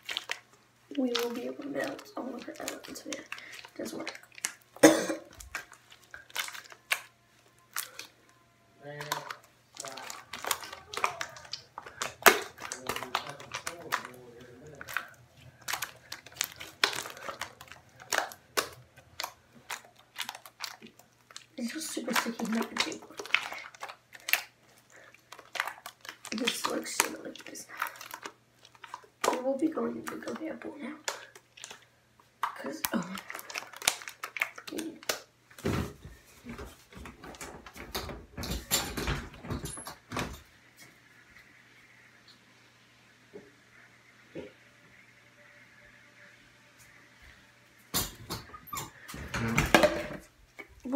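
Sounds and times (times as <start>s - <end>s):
slime squishing with clicks and pops: 5.3s - 8.1s, 8.9s - 35.3s
knocks and thumps on tiled floor: 35.6s - 40.5s, 47.9s - 50.3s.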